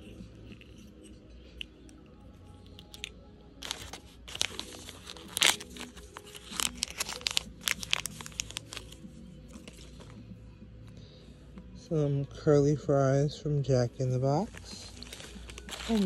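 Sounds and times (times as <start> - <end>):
plastic wrapper tearing: 2.6 - 10.0, 14.5 - 16.0.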